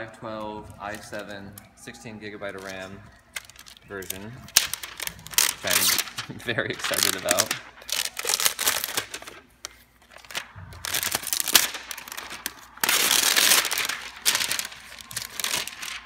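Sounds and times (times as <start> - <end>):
plastic sleeve crinkling: 0.0 - 16.0.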